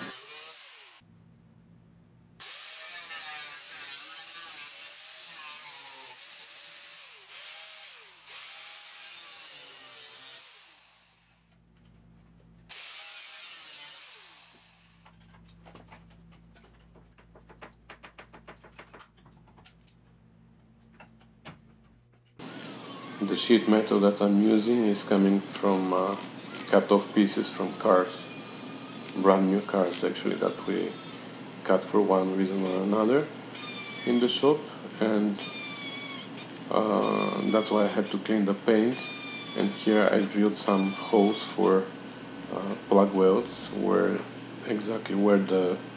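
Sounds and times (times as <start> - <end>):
angle grinder cutting steel: 0.0 - 1.0, 2.4 - 11.5, 12.7 - 15.9, 22.4 - 31.3, 33.5 - 34.6, 35.4 - 38.2, 38.9 - 41.9
faint clicks and taps: 15.3 - 22.4.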